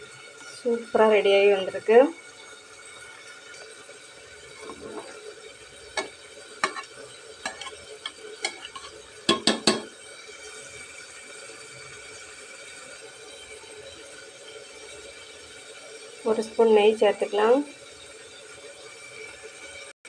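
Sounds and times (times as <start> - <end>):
spoon stirring in metal pot: 4.5 - 10.0
spoon knocks on pot: 6.0 - 6.9, 8.4 - 9.9.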